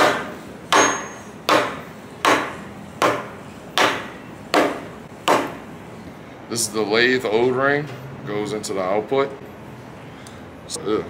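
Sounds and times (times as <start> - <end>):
rubber mallet tapping metal: 0.0 - 5.6.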